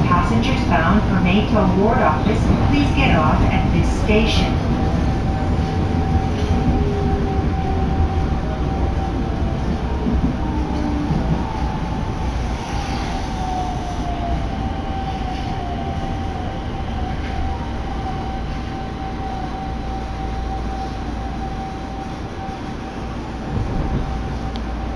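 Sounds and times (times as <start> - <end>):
subway train rumble: 0.0 - 24.9.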